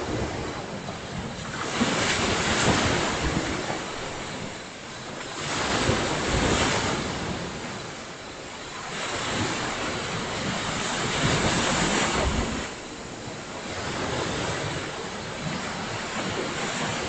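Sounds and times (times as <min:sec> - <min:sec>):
ocean waves breaking on shore: 0:00.0 - 0:17.0.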